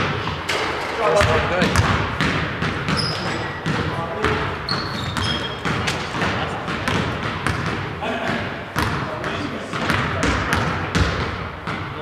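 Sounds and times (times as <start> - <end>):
sneaker squeaks: 0.1 - 7.8
basketball bouncing on hardwood: 1.2 - 11.9
players chatter: 2.8 - 10.9.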